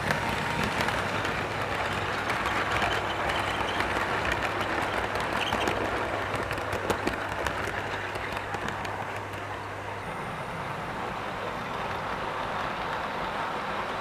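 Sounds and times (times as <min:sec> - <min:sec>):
model train cars rattling on track: 0:00.0 - 0:14.0.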